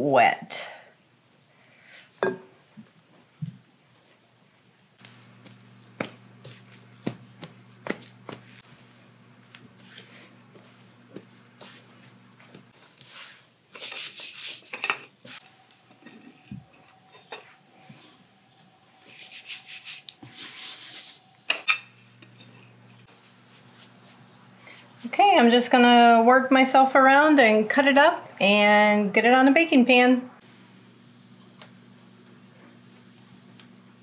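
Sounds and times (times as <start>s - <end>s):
rolling pin rolling dough: 5.0s - 15.5s
hands tapping dough: 5.4s - 8.6s.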